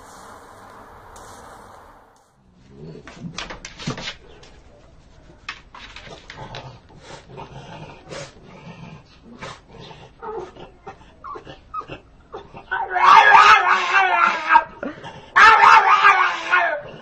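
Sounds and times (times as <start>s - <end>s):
dog barking: 12.9s - 14.6s, 15.4s - 16.7s.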